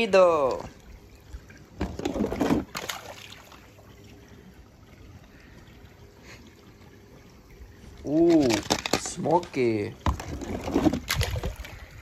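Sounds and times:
water splashing in plastic capsule: 0.0 - 3.8, 7.9 - 12.0
faint steady hiss: 0.0 - 10.4.

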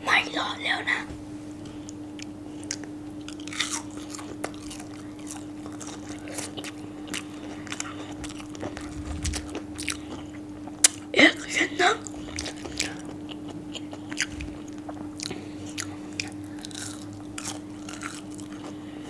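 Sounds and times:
faint steady hum: 0.0 - 19.0
crunchy biting and chewing: 1.9 - 11.1, 12.0 - 19.0.

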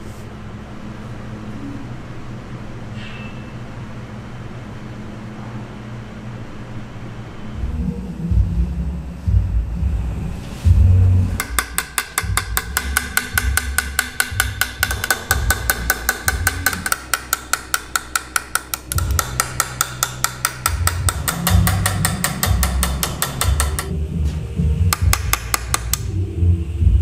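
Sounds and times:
low rumble: 7.4 - 11.4
hammer tapping chisel on steel: 11.4 - 23.9, 24.9 - 26.2.

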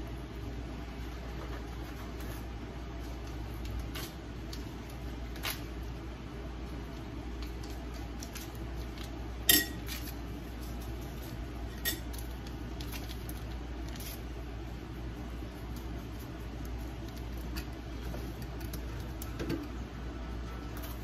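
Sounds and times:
steady low background hum: 0.0 - 21.0
metal utensils clinking cookware: 9.5 - 10.0.

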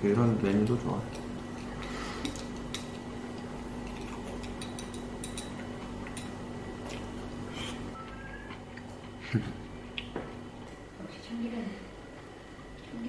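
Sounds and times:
steady low hum: 0.0 - 13.0
chopsticks clicking on bowls: 2.2 - 3.1, 3.9 - 7.0.

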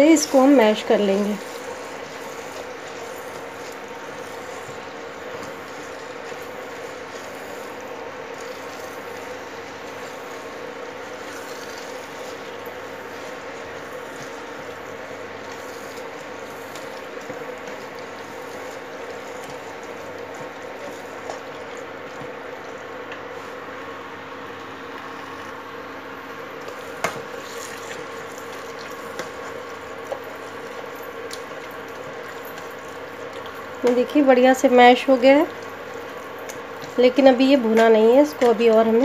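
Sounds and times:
masher squelching vegetables: 0.0 - 23.8, 26.5 - 39.0
cooking hiss: 0.0 - 24.0
steady hum: 0.0 - 39.0.

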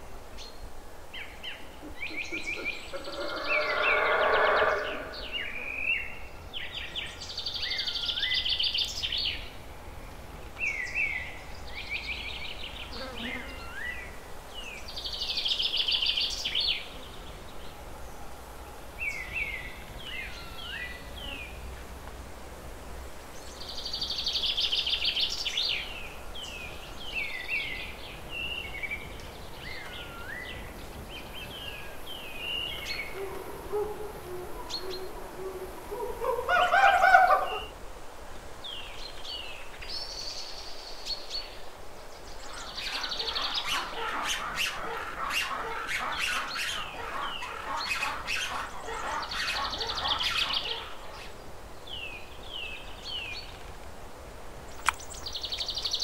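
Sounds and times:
drawn-out rising bird call: 1.8 - 5.9, 42.6 - 51.2
rapid chattering bird calls: 1.9 - 5.2, 42.6 - 51.1.

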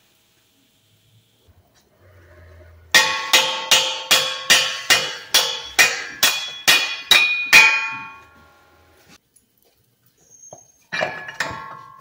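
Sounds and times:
hammer striking metal shaft: 3.0 - 8.4.

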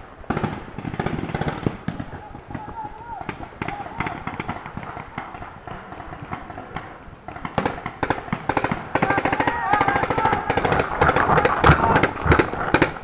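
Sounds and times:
paintball markers firing: 0.3 - 13.0
voices shouting: 2.0 - 5.5, 8.9 - 12.4.

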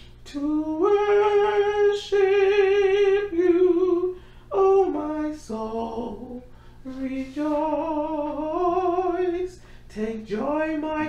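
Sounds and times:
woman singing unaccompanied: 0.2 - 11.0
singer breathing in: 4.1 - 4.5, 6.5 - 6.9, 9.6 - 9.9.

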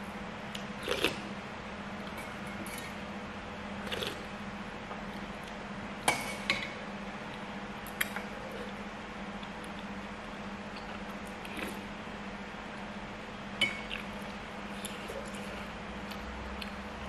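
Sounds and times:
low steady hum: 0.0 - 17.0
metal spoon clinking on pot: 2.2 - 3.0.

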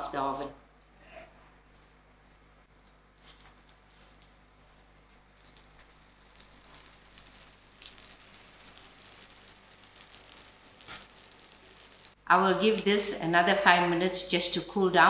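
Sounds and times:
pastry crackling and sizzling: 2.6 - 12.2.

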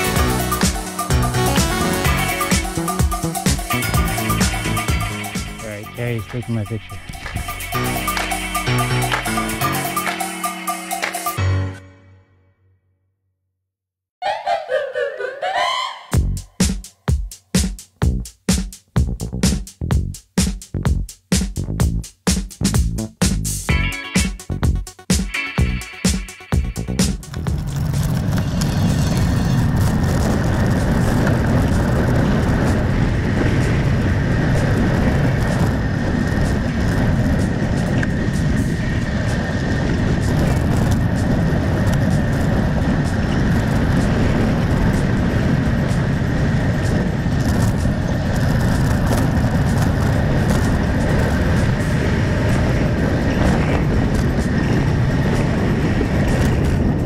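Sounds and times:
wind buffeting microphone: 27.3 - 57.0.

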